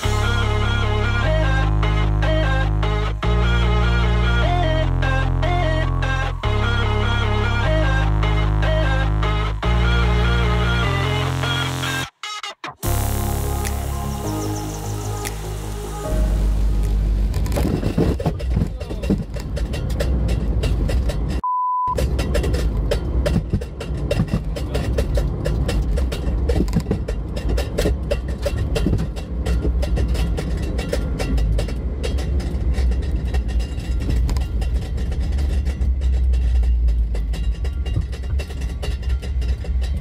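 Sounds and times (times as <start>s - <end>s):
car engine and road noise: 0.0s - 40.0s
high-pitched beep: 21.4s - 22.0s.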